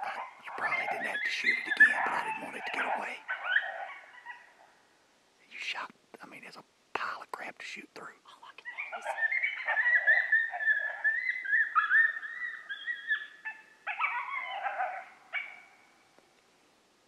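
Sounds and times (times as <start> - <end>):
coyote howling: 0.0 - 4.8, 8.6 - 16.0.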